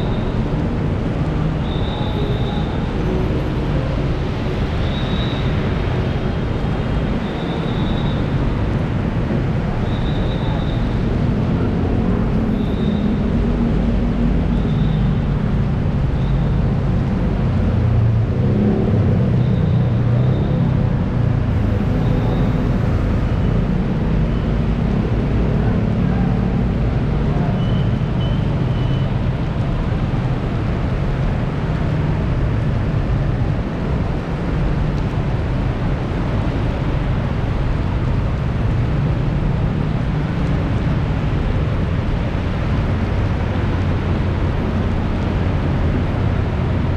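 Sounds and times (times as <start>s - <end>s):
heavy rain falling: 21.0s - 46.9s.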